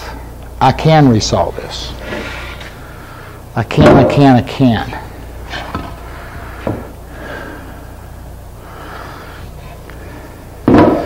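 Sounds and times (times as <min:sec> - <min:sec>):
wooden boards knocking: 0:03.8 - 0:04.2, 0:10.7 - 0:11.0.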